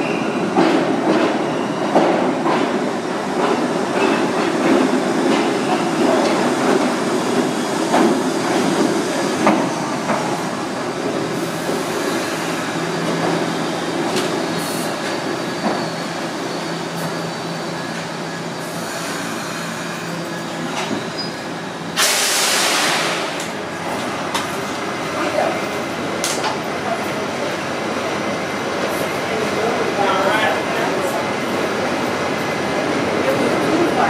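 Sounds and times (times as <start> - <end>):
subway train rumbling: 0.0 - 34.0
brief air hisses: 22.0 - 23.4.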